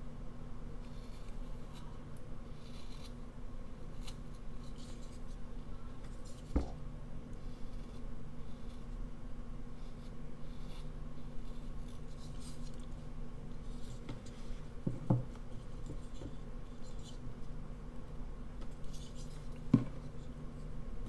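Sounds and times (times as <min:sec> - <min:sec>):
knife scraping wood: 0:02.5 - 0:03.2.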